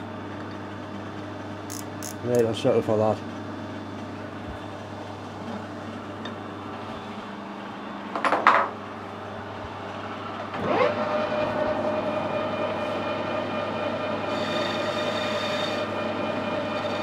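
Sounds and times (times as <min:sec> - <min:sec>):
metal lathe motor whine: 0:10.0 - 0:17.0.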